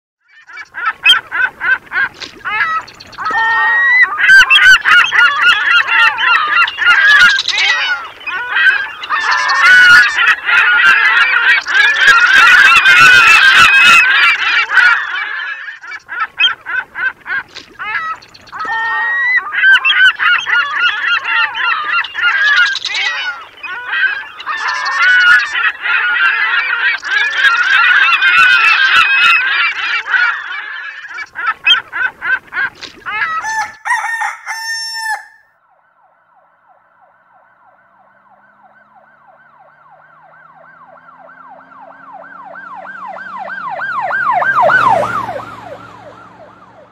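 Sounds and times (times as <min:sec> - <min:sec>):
dense chorus of birds calling: 0:00.3 - 0:35.4.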